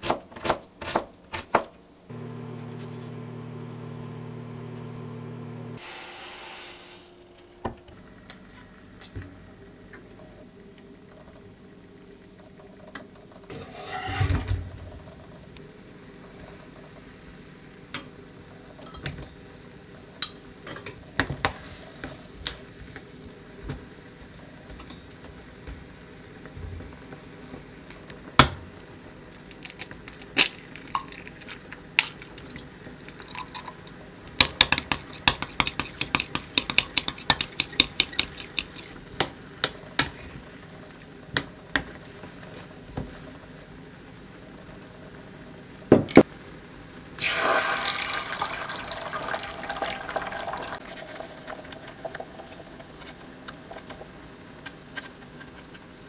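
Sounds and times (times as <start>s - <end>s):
chopsticks beating eggs in glass: 34.5s - 39.0s.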